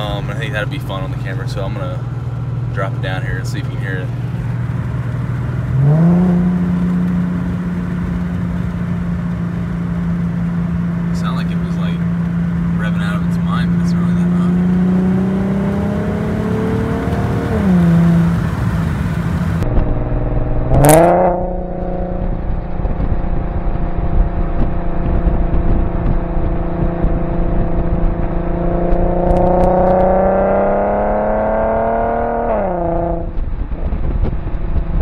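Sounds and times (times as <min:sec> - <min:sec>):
car exhaust engine note: 0:00.0 - 0:35.0
engine rev blip: 0:19.6 - 0:23.2.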